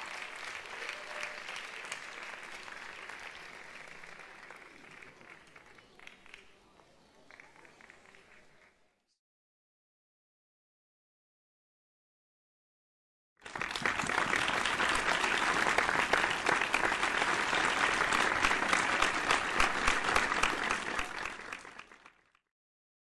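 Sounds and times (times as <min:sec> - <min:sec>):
audience applauding: 0:00.0 - 0:08.8, 0:13.4 - 0:22.4.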